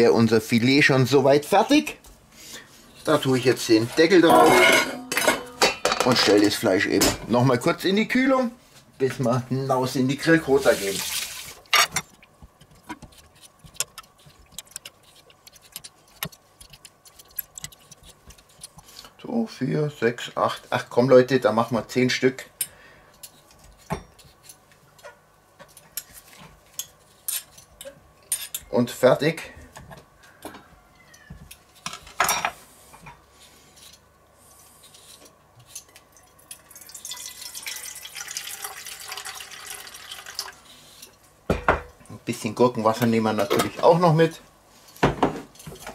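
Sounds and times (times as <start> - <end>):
liquid pouring into metal bowl: 36.2 - 40.6.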